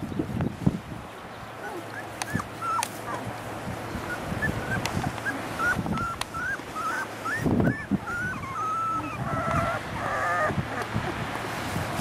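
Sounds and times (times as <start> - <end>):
puppies whimpering: 1.6 - 3.3, 3.9 - 11.2.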